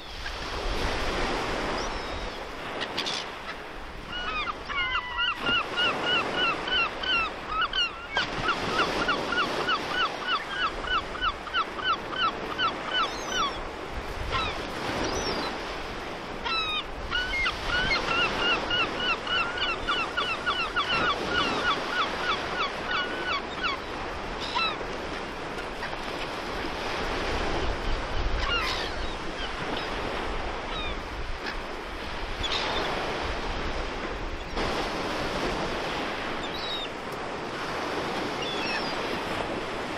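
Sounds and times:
wind: 0.0s - 39.9s
gulls calling: 1.5s - 33.3s, 35.8s - 39.9s.

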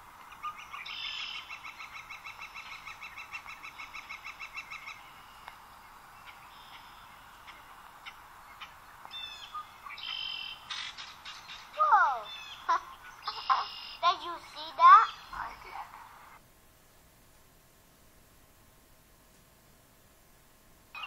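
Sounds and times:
woodpecker long call: 0.0s - 15.6s
birds chirping: 0.0s - 16.4s
faint steady background noise: 0.0s - 21.0s.

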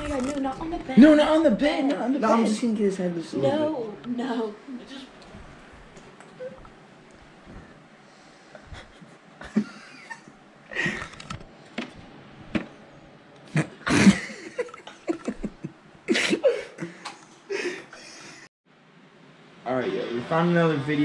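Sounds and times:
stifled laughter: 8.7s - 11.2s, 13.5s - 18.0s.

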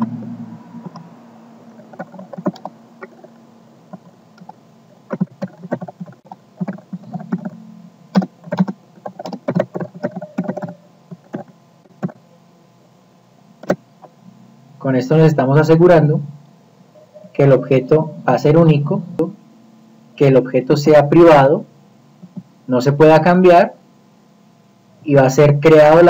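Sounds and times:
low steady hum: 0.0s - 26.0s
keyboard typing: 1.8s - 3.3s, 3.9s - 12.2s.

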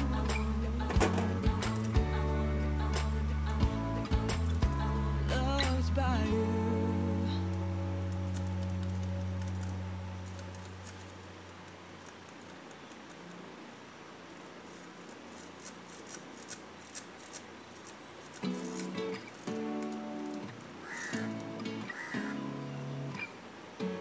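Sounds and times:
metallic clicks and rubbing: 0.2s - 2.0s, 7.4s - 13.6s, 14.4s - 20.8s.

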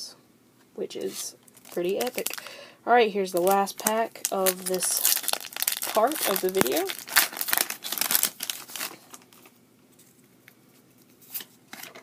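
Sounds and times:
foil wrapper tearing and crinkling: 1.5s - 2.5s, 3.4s - 9.5s.

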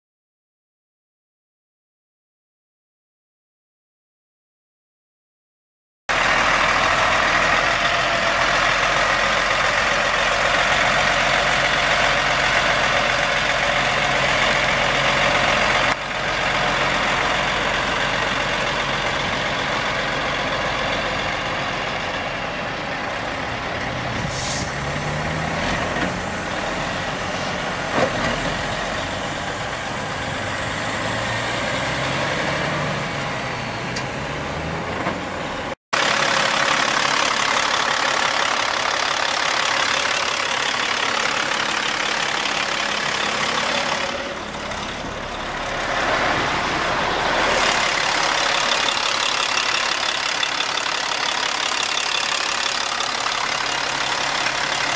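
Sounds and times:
diesel truck engine running: 6.1s - 54.9s
short hiss: 24.3s - 24.8s.

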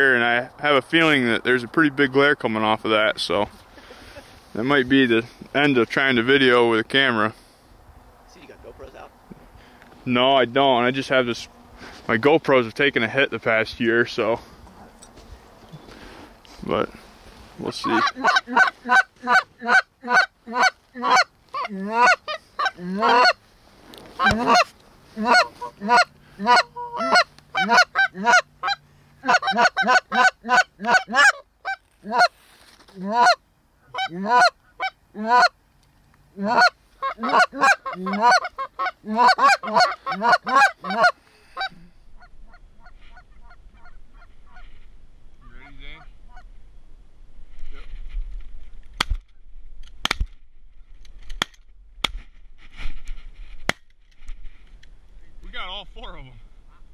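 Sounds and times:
goose call honking: 17.6s - 23.4s, 24.1s - 35.6s, 36.4s - 44.8s, 45.4s - 46.5s.

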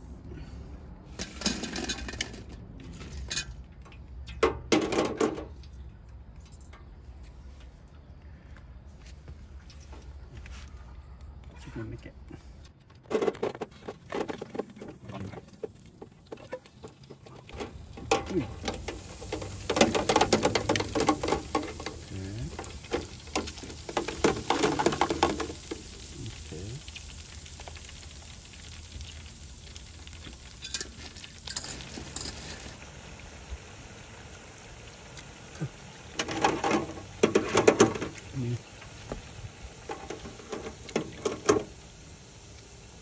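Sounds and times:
food sizzling in deep fryer: 17.5s - 43.0s.

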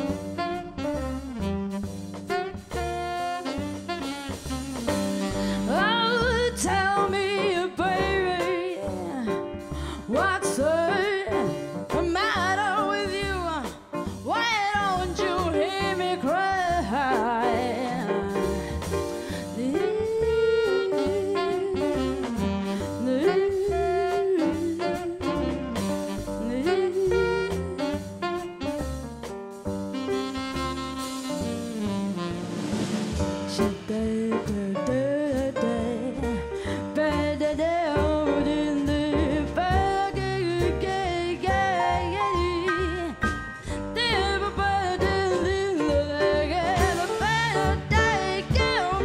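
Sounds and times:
jazz blues band playing: 0.0s - 49.0s
woman singing wordless vocals: 5.4s - 13.7s, 14.3s - 18.5s, 19.4s - 22.3s, 23.0s - 25.6s, 26.4s - 27.8s, 33.6s - 43.2s, 43.9s - 49.0s.

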